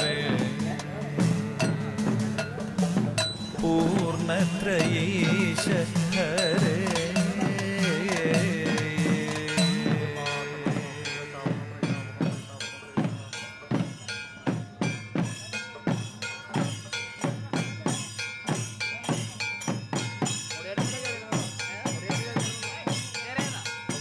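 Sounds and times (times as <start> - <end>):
sustained accompanying tones: 0.0 - 17.2
hand drum rhythm: 0.0 - 24.0.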